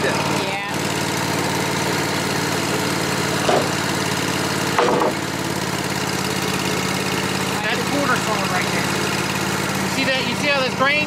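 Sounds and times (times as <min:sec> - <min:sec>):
sawmill engine running: 0:00.0 - 0:11.0.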